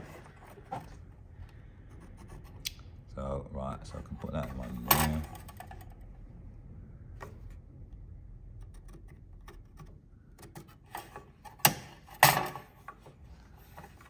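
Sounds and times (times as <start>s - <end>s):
tools and wood clicking on workbench: 4.3s - 6.0s, 8.6s - 13.2s.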